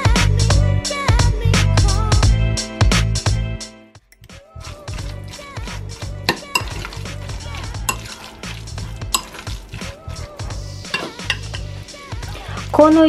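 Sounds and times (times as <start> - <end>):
background music: 0.0 - 13.0
fork scraping through mixture: 4.5 - 12.7
fork clinking on glass bowl: 6.3 - 9.9, 10.8 - 11.7.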